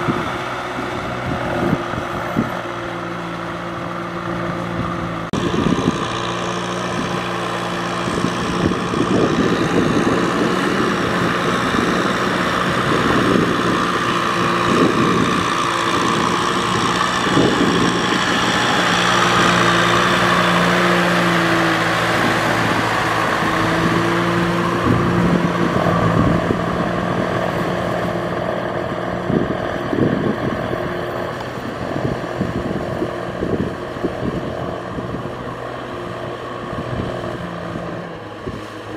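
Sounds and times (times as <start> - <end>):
tractor diesel engine under load: 0.0 - 38.9.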